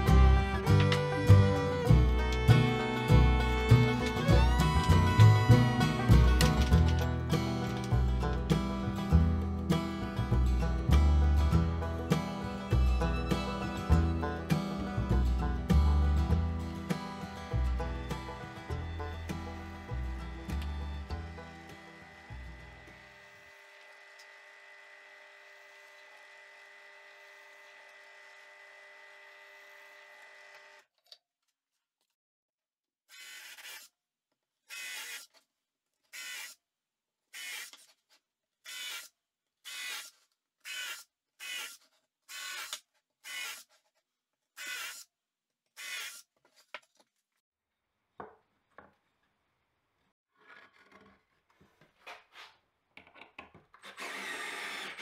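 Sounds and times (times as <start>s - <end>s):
cordless drill boring plywood: 20.6s - 30.9s, 33.1s - 33.9s, 34.7s - 35.3s, 37.4s - 37.9s, 38.7s - 39.1s, 39.7s - 43.8s, 44.6s - 45.0s, 45.8s - 46.2s, 53.8s - 55.0s
drill press motor hum: 21.5s - 30.8s
knocks of wood being handled: 48.2s - 49.0s.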